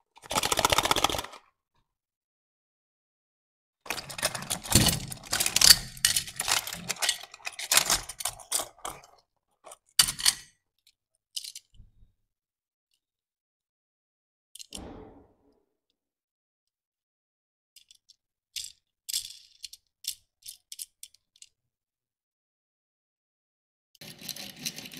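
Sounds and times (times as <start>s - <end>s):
toy cars clattering: 3.9s - 10.5s, 11.4s - 11.7s, 17.8s - 21.5s, 24.0s - 24.9s.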